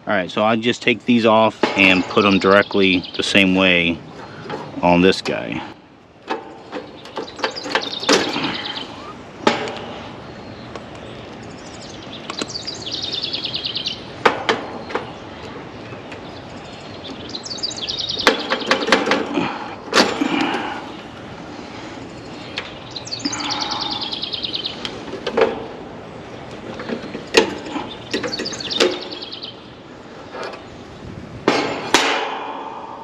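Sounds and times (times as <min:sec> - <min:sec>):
bird trilling: 0:06.9 - 0:09.2, 0:11.5 - 0:14.2, 0:16.3 - 0:19.6, 0:22.2 - 0:25.0, 0:27.7 - 0:29.7.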